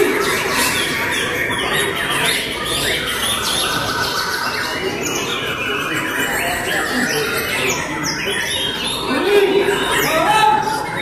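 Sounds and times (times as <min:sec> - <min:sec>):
birds singing and chirping: 0:00.0 - 0:11.0.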